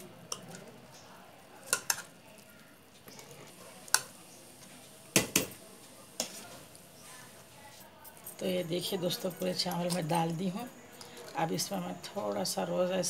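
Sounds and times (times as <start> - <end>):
metal ladle clinking on pot: 1.7 - 2.1.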